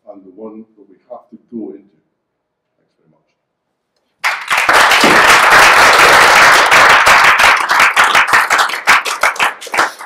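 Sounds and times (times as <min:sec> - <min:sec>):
audience applauding: 0:04.2 - 0:10.0.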